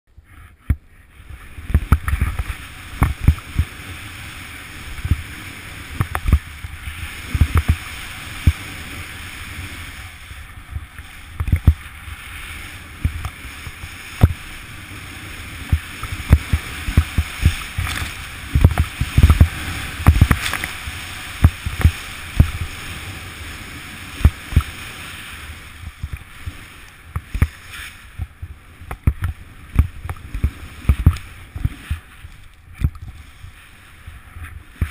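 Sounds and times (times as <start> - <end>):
snowboard hissing through snow: 0.4 - 28.8, 29.4 - 32.4, 33.2 - 34.9
snowboard thumps and knocks: 1.7 - 3.8, 5.9 - 6.6, 7.2 - 8.7, 14.1 - 14.5, 15.6 - 20.8, 21.4 - 22.9, 24.2 - 24.8, 28.2 - 32.1.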